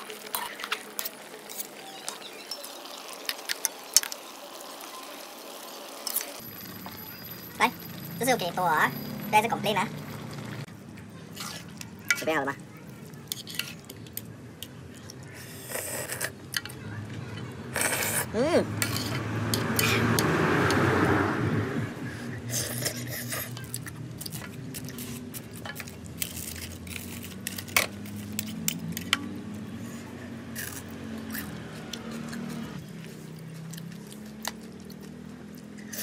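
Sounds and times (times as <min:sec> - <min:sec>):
utensils scraping a metal wok: 0:00.0 - 0:04.3, 0:11.3 - 0:12.4, 0:13.3 - 0:14.0, 0:17.8 - 0:20.3, 0:22.4 - 0:29.1.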